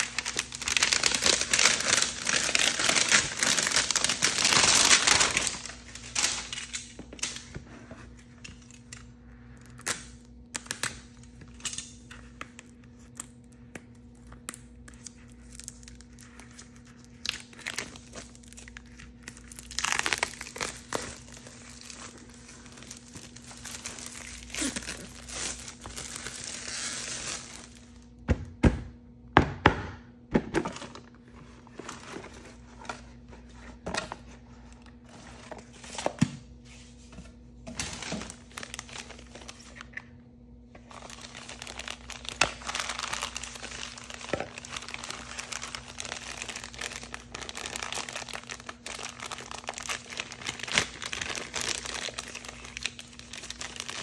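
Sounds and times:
plastic packets tearing: 0.0 - 7.5, 8.5 - 28.1, 37.7 - 39.9, 40.8 - 54.0
plastic wrapping crinkling: 0.0 - 7.5, 9.6 - 28.1, 37.7 - 39.9, 40.8 - 54.0.

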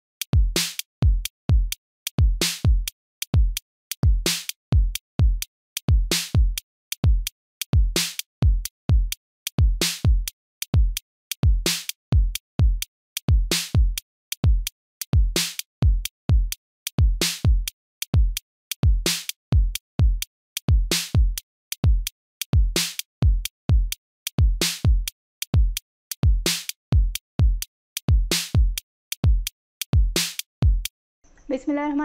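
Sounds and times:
drum machine beat: 0.2 - 30.9.

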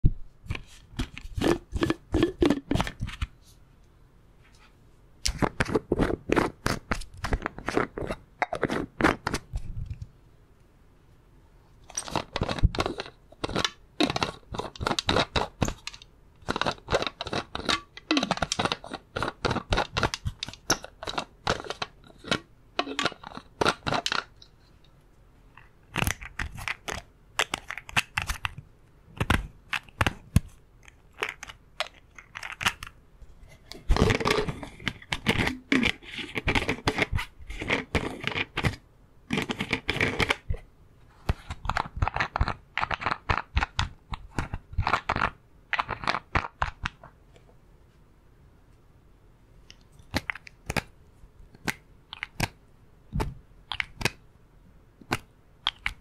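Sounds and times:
plastic bottle cap twisting: 0.5 - 3.3, 11.9 - 24.4, 29.2 - 32.9, 33.5 - 40.6.

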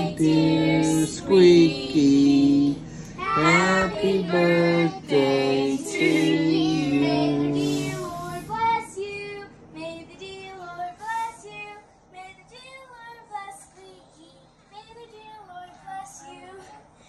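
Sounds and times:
young children singing: 0.0 - 9.4.

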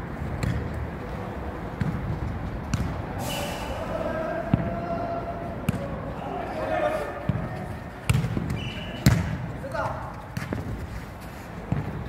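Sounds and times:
ball kicked and bouncing: 0.3 - 0.8, 1.7 - 3.0, 7.3 - 10.9, 11.7 - 12.0.

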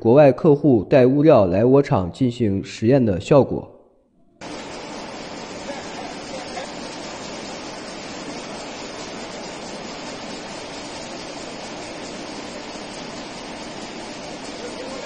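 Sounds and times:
sand streaming hiss: 4.4 - 15.0.

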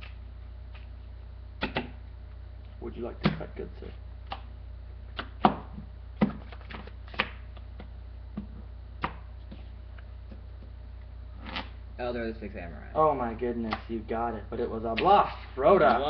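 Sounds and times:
steady low hum: 0.0 - 16.0
cards clicking and knocking: 5.2 - 9.6.

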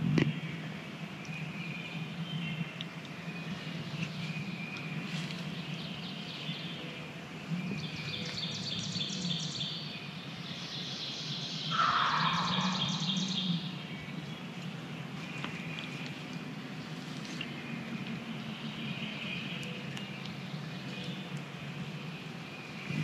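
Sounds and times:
songbirds trilling: 0.0 - 23.0
turkey gobbling: 11.7 - 13.1.

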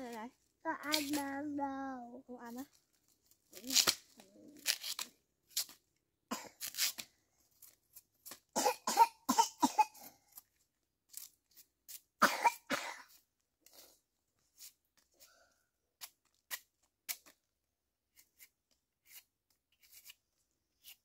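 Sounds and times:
person coughing: 8.6 - 10.2, 12.2 - 13.1.

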